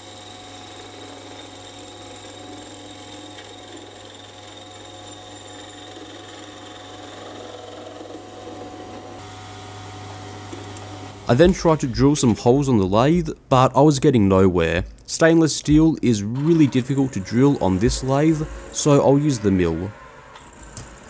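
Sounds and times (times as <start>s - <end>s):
lathe motor hum and whine: 0.0s - 11.3s, 16.4s - 21.0s
lathe tool cutting metal: 0.0s - 11.9s, 16.3s - 21.0s.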